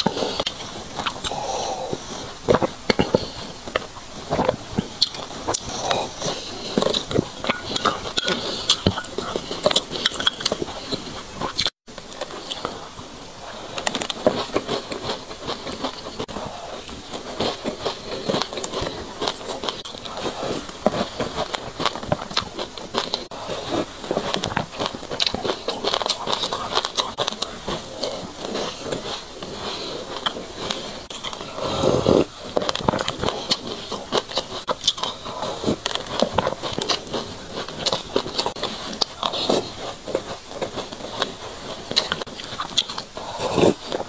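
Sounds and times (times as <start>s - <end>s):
person chewing sesame seeds: 0.0s - 44.0s.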